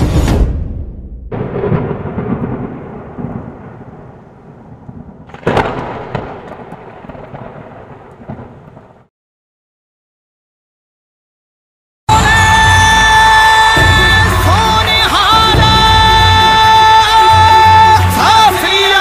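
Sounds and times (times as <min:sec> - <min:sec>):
loud thunder clap: 0:01.3 - 0:09.1
thunder rumbling: 0:01.3 - 0:09.1.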